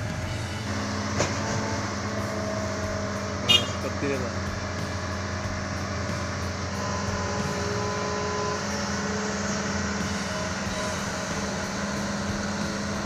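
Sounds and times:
diesel engine humming: 0.0s - 13.0s.

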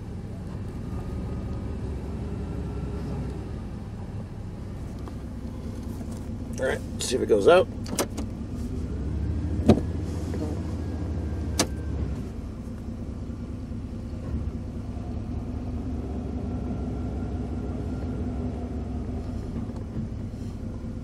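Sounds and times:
truck engine idling: 0.0s - 21.0s
gear lever clunk: 7.7s - 8.4s, 11.5s - 12.0s.

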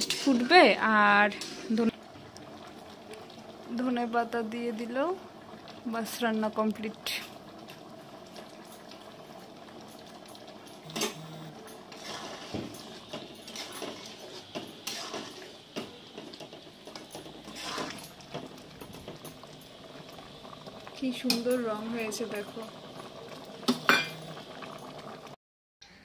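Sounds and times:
metal spatula scraping a pan: 0.0s - 0.7s, 11.8s - 15.6s, 17.4s - 18.1s
curry simmering in a pan: 0.0s - 25.4s.

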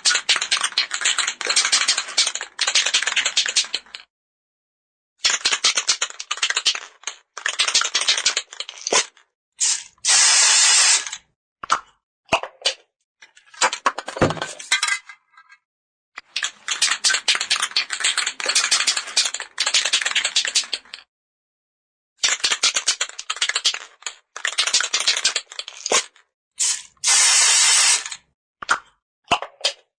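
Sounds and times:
spray can ball rattling: 0.0s - 4.0s, 5.2s - 11.2s, 16.4s - 21.0s, 22.2s - 28.2s
aerosol spray hiss: 9.6s - 11.1s, 26.6s - 28.1s.

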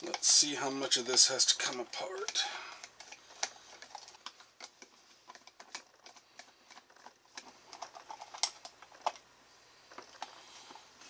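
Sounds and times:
plastic parts clicking: 1.0s - 9.3s.

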